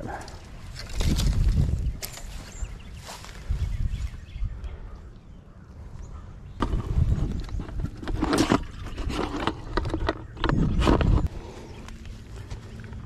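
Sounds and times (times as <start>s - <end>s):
plastic bucket scrapes and knocks: 6.6s - 11.3s.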